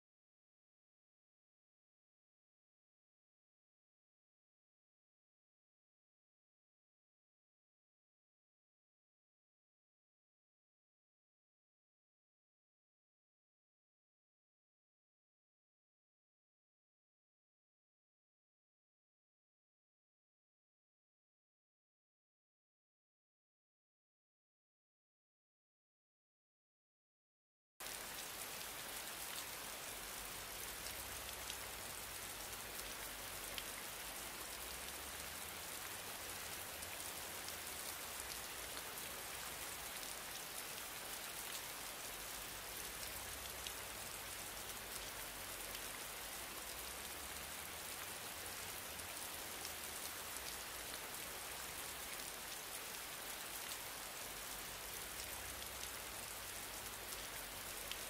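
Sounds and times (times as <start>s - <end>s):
faint background hiss: 27.8s - 58.0s.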